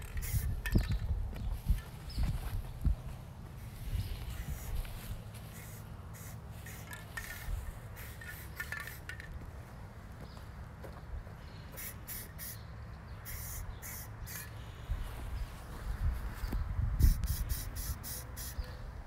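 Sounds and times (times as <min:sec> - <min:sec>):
spray paint can hissing: 0:00.0 - 0:00.7, 0:05.5 - 0:09.2, 0:11.8 - 0:12.6, 0:13.2 - 0:14.5, 0:17.0 - 0:18.6.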